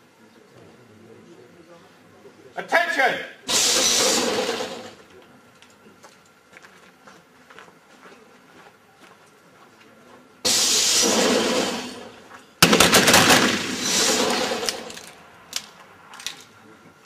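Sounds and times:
revolver gunshots: 12.6 - 15.1.

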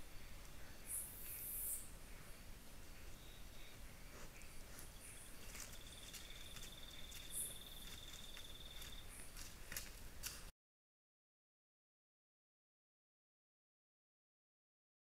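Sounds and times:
faint clicks and rustles: 4.1 - 10.5.

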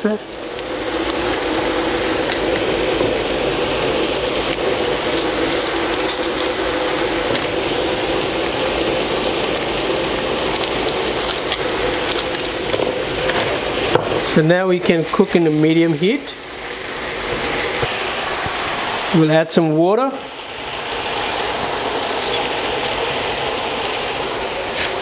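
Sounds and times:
steady low hum: 0.0 - 15.2
food sizzling in a frying pan: 0.0 - 25.0.

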